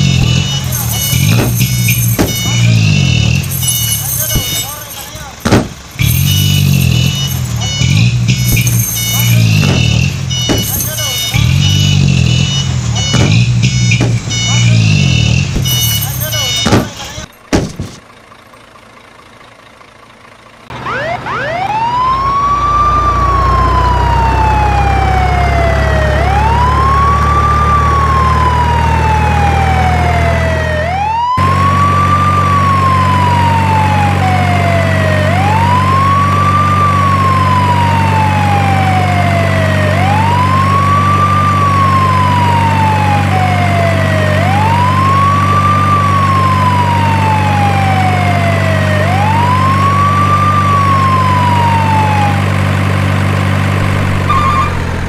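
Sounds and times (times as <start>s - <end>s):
siren wailing: 0.0s - 5.3s, 6.0s - 17.3s, 20.7s - 52.6s, 53.8s - 55.0s
low engine drone: 16.5s - 55.0s.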